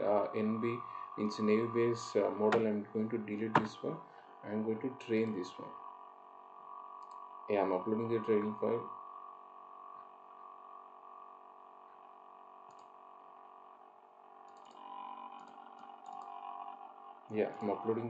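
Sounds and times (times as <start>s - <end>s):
steady background hum: 0.0s - 18.0s
computer mouse clicking: 7.0s - 7.2s, 12.7s - 12.9s, 14.4s - 14.8s, 15.4s - 16.3s.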